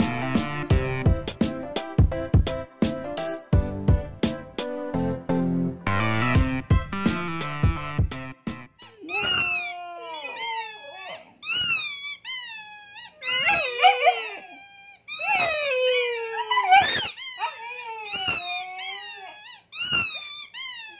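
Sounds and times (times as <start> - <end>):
dogs whining: 8.8 - 20.9.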